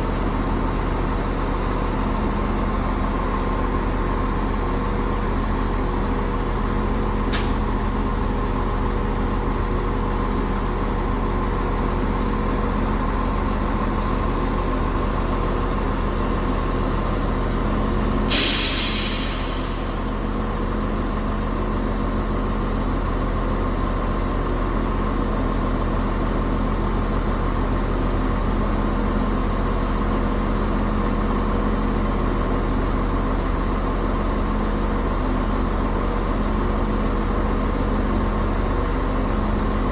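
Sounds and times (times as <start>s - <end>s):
train engines idling: 0.0s - 39.9s
air brake hiss: 7.3s - 7.6s, 18.3s - 20.1s.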